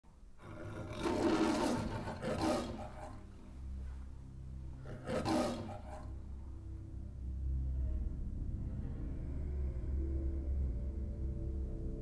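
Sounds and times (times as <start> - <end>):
lion roaring: 0.4 - 3.2, 4.8 - 6.1.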